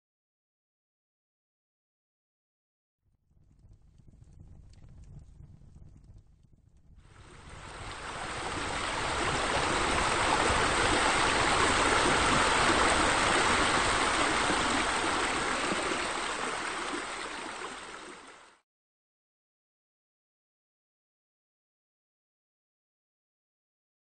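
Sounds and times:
water spilling into a pool: 7.1s - 18.6s.

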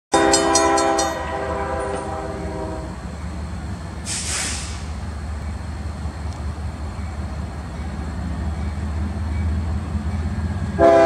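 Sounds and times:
locomotive air horn chord: 0.1s - 3.0s, 10.8s - 11.0s
train rumble: 0.1s - 11.0s
burst of hiss: 4.0s - 5.0s.

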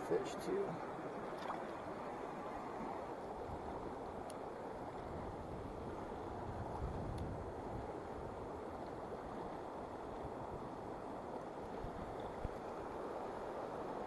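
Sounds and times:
stream rushing over rocks: 0.0s - 3.2s.

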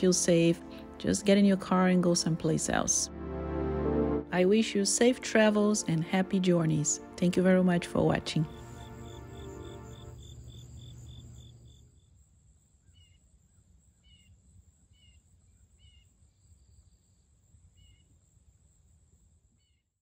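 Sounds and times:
background music: 0.0s - 10.2s
faint outdoor ambience: 0.0s - 19.6s.

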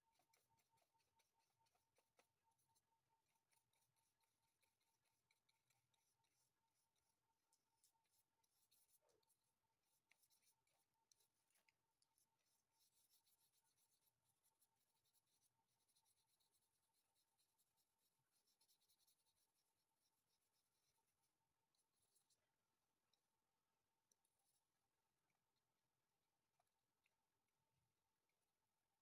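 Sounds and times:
brush strokes on canvas: 0.0s - 22.4s
faint steady tone: 0.0s - 29.0s.

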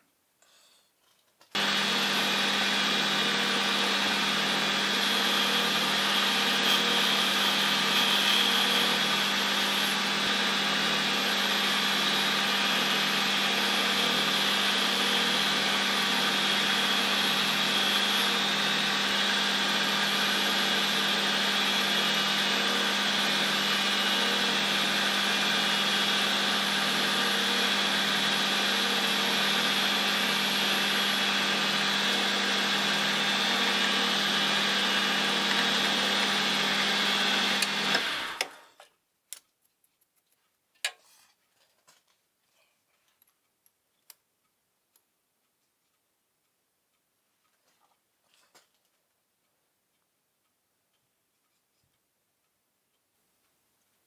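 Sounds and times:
metal lathe humming: 1.6s - 38.7s.

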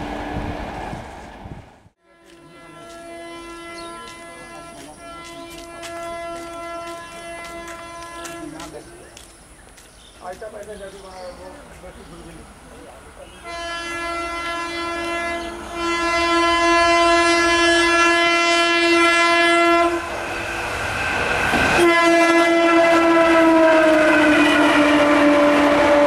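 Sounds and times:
train wheels on rails: 0.0s - 13.6s, 19.3s - 26.0s
locomotive air horn blasts: 2.0s - 8.8s, 13.4s - 20.1s, 21.8s - 26.0s.

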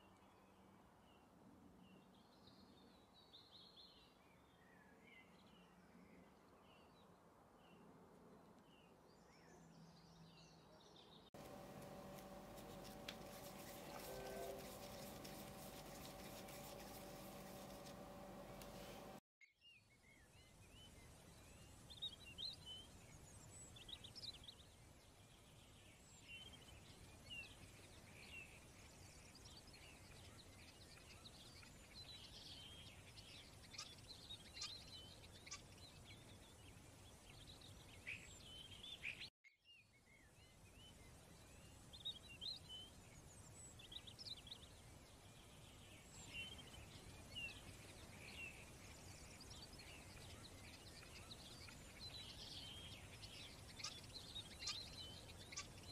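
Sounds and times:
faint birds chirping: 0.0s - 19.2s, 39.9s - 55.9s
low steady hiss: 11.4s - 19.2s.

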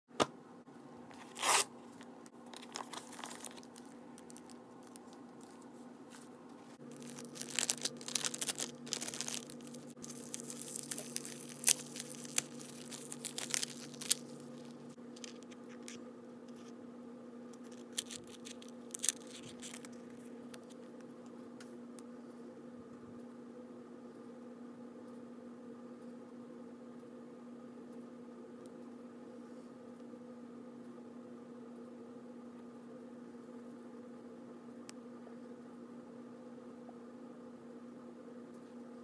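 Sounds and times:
faint steady hum: 0.2s - 39.0s
paper mailer ripping: 1.2s - 1.7s, 2.6s - 5.1s, 6.8s - 15.5s
plastic bag crinkling: 2.4s - 5.7s, 6.8s - 16.0s, 17.6s - 20.8s.

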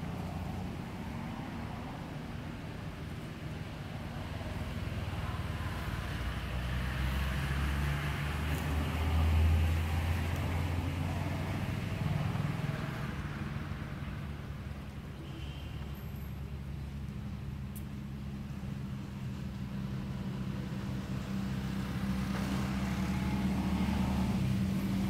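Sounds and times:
vehicle engine passing: 4.2s - 14.4s, 18.4s - 25.0s.

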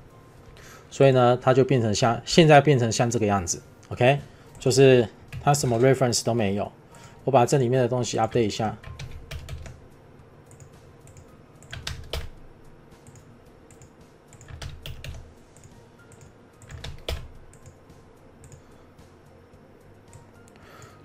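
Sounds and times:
typing on keyboard: 8.8s - 9.8s, 10.5s - 12.4s, 13.0s - 17.8s, 18.4s - 18.6s.

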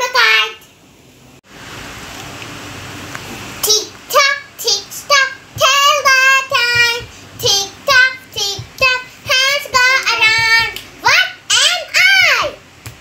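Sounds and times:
girl singing unaccompanied: 3.6s - 12.6s.

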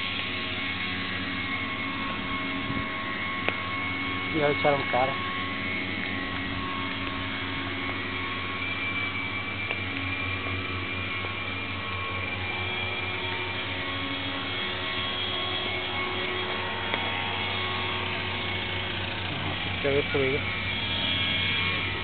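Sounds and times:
steady mechanical hum: 0.0s - 22.0s.

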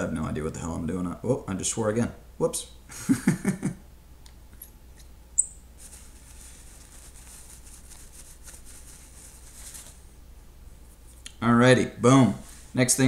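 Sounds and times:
paper towel rustling: 5.8s - 11.1s, 12.0s - 13.0s.

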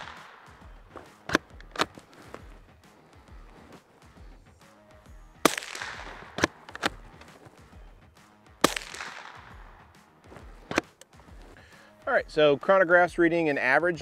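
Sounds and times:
suppressed rifle shots: 0.0s - 2.0s, 5.4s - 7.4s, 8.6s - 9.8s
background music with beat: 0.0s - 14.0s
rifle bolt clacks: 1.0s - 2.1s, 5.5s - 7.4s.

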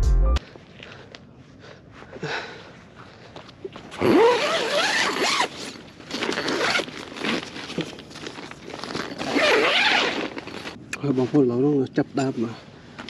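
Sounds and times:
zipper being pulled: 4.0s - 10.8s.

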